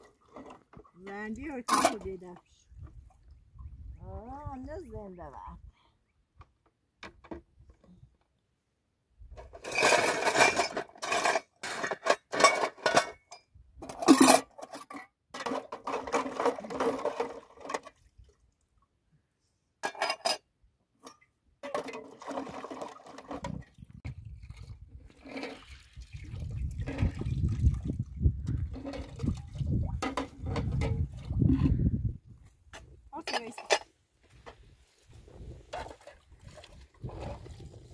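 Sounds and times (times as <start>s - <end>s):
water splashing over pots: 0.0s - 4.2s, 15.4s - 18.7s, 21.6s - 31.7s, 35.6s - 37.9s.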